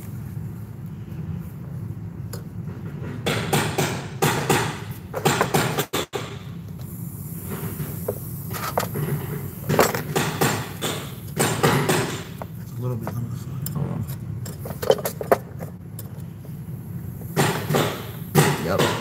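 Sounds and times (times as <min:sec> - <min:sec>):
steady low hum: 0:00.0 - 0:19.0
tools knocking and clicking: 0:02.3 - 0:06.4, 0:08.6 - 0:13.2, 0:14.4 - 0:16.3.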